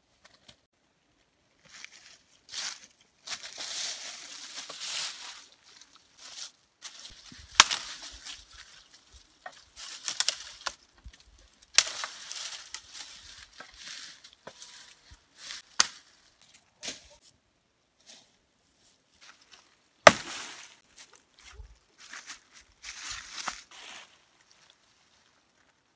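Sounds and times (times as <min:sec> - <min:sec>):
leaves and twigs rustling: 0:00.2 - 0:17.4, 0:18.0 - 0:25.9
hatchet chopping branches: 0:07.2 - 0:08.4, 0:11.7 - 0:13.8, 0:15.6 - 0:16.2, 0:20.0 - 0:20.8.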